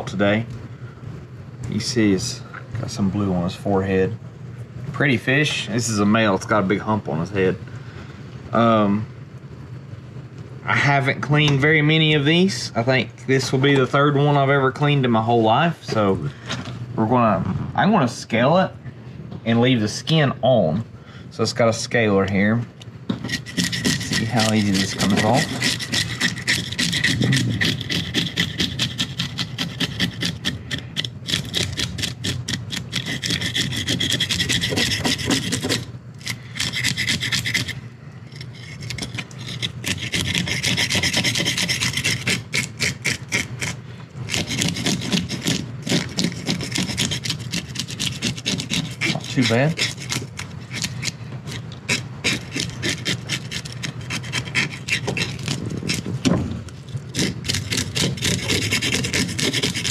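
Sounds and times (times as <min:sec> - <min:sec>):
fish scaler scraping scales: 0:23.2 - 0:59.9.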